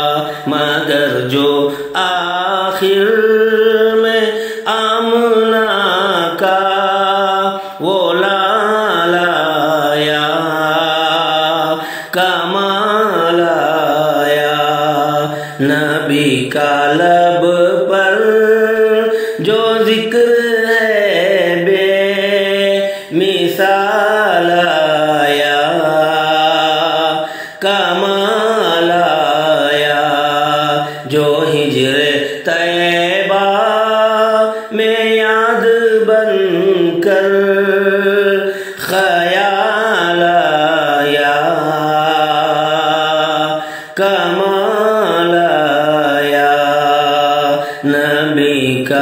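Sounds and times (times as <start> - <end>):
man chanting in ornamented notes: 0.0 - 49.0
man singing unaccompanied: 0.0 - 49.0.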